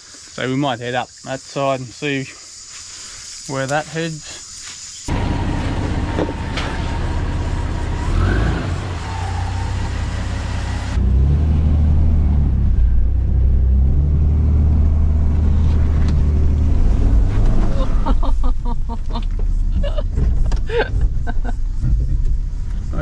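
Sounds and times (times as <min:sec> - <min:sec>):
engine rumbling: 0:05.0 - 0:23.0.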